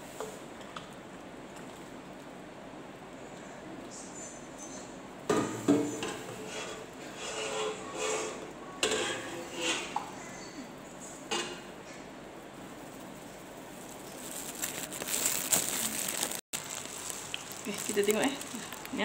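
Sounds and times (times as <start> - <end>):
metal pot scraping a metal mould: 5.8 - 10.1
chocolate mix pouring: 14.0 - 19.0.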